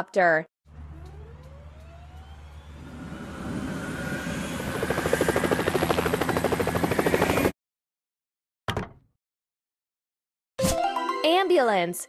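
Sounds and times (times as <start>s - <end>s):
cartoon helicopter rotor chop: 0.7s - 7.6s.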